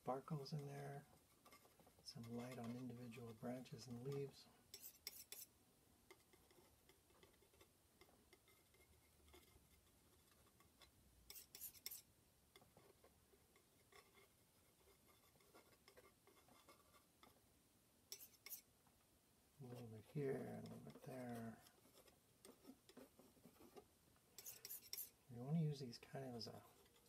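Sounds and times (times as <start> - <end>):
palette knife scraping palette: 1.4 - 5.5, 8.3 - 12.1, 18.1 - 18.7, 19.8 - 25.2.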